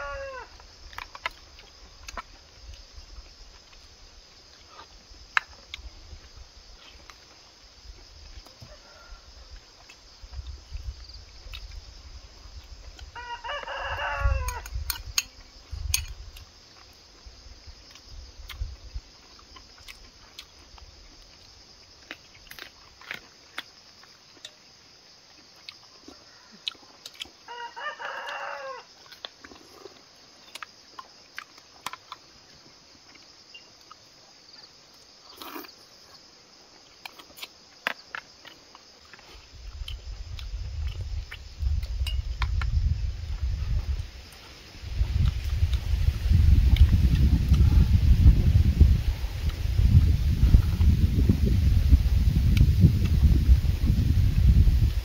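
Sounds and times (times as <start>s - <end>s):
rooster crowing: 0.0s - 0.6s, 8.6s - 9.5s, 13.1s - 14.7s, 27.5s - 29.0s.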